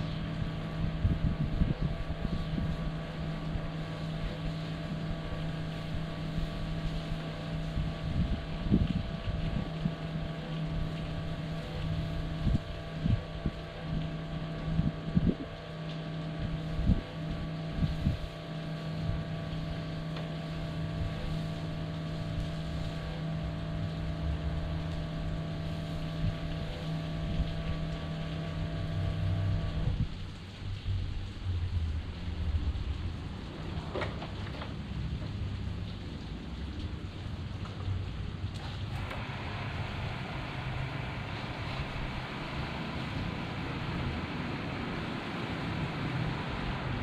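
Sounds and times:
wind buffeting microphone: 0:00.0 - 0:03.8, 0:05.8 - 0:10.1, 0:14.7 - 0:15.7, 0:16.4 - 0:18.3
pump humming: 0:00.0 - 0:47.0.

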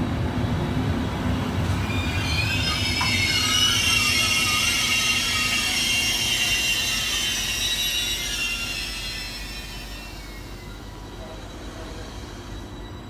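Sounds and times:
train rolling rumble: 0:00.0 - 0:13.0
train wheels squealing: 0:01.5 - 0:13.0.

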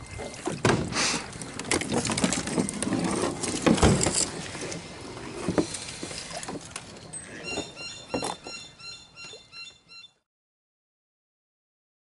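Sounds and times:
fishing gear knocking and rattling: 0:01.3 - 0:04.5.

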